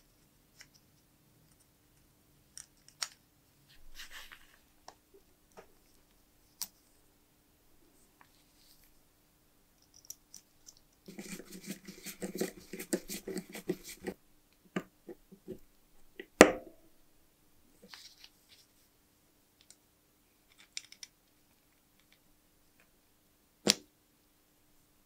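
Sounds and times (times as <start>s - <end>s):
small metal parts clicking and scraping: 20.4s - 21.1s.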